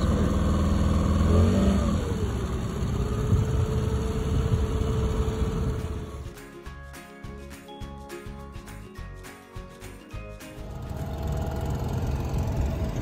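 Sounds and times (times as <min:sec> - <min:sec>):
outboard motor running: 0:00.0 - 0:06.3, 0:10.6 - 0:13.0
music: 0:05.8 - 0:13.0.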